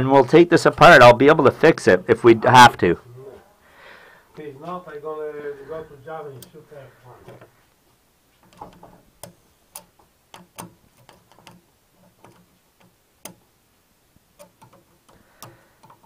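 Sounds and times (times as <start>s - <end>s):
small hard parts clicking: 6.3s - 7.6s, 8.4s - 13.6s, 14.2s - 16.0s.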